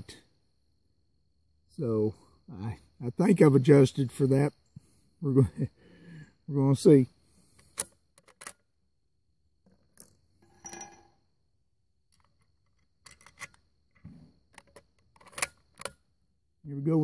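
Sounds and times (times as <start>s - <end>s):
rifle bolt metallic clicks: 7.6s - 8.6s, 12.1s - 13.6s, 14.5s - 16.0s
rifle bolt sliding scrape: 12.2s - 15.9s.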